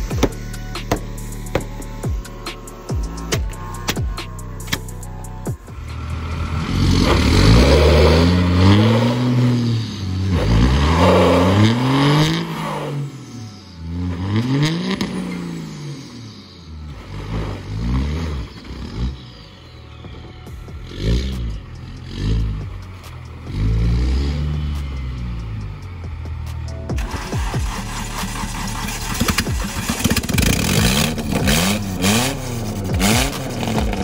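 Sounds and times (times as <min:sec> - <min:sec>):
vehicle engine revving: 0:00.0 - 0:19.5, 0:20.6 - 0:34.0.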